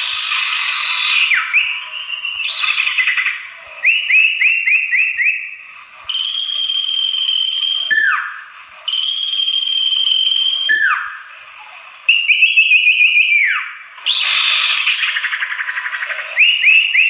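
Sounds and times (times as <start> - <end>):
harsh bird chattering: 0.0 - 1.8, 2.4 - 3.5, 14.1 - 16.7
bird calls: 0.0 - 5.7, 10.5 - 17.0
long bird whistle: 0.0 - 11.4, 12.1 - 17.0.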